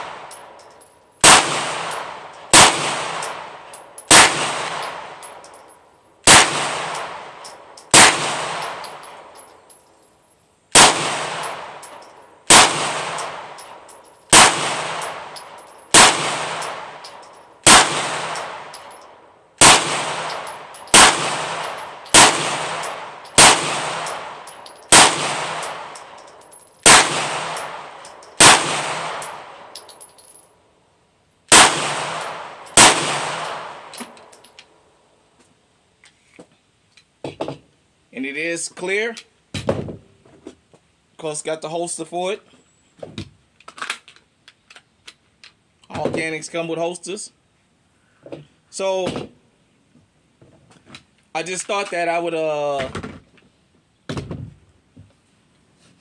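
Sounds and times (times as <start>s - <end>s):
pistol shots echoing: 1.2s - 5.4s, 6.2s - 9.4s, 10.7s - 19.0s, 19.6s - 26.2s, 26.8s - 29.7s, 31.5s - 33.9s.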